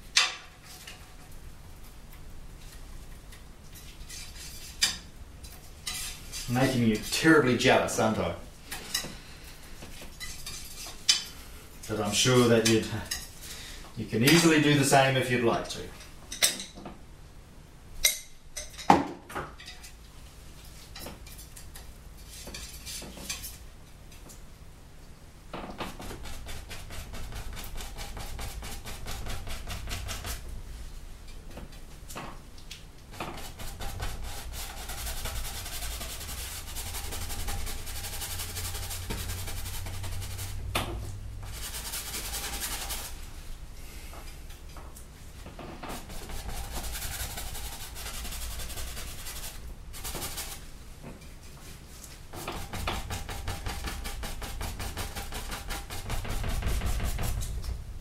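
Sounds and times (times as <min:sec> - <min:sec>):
low steady hum: 0:19.5 - 0:58.0
paintbrush scrubbing on canvas: 0:25.9 - 0:30.5, 0:33.2 - 0:43.5, 0:45.9 - 0:50.7, 0:51.6 - 0:57.6.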